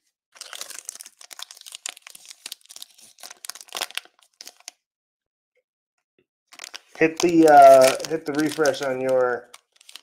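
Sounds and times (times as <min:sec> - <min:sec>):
foil wrapper tearing and crinkling: 0:00.4 - 0:04.8, 0:06.5 - 0:10.0.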